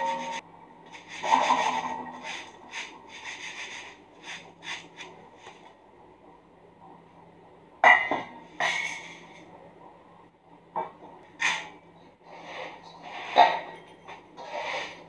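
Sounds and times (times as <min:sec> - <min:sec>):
flakes rasping in metal sieve: 0:01.0 - 0:05.2, 0:14.4 - 0:15.0.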